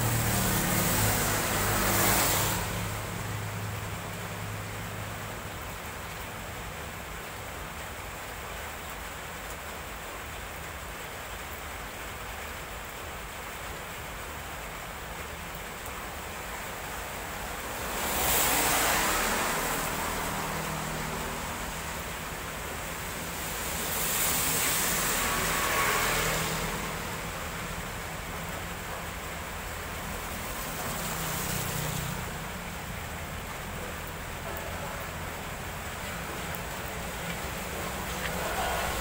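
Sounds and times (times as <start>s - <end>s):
tyres swishing through water: 0.0s - 6.3s, 15.9s - 39.0s
rain on wet road: 0.0s - 39.0s.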